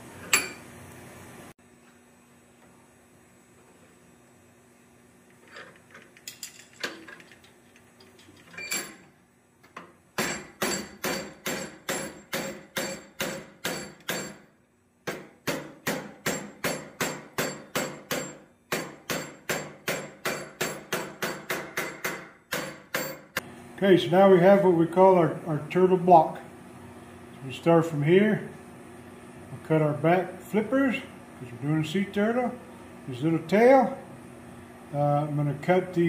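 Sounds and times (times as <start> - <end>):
hammer ringing on steel: 15.5 - 23.3.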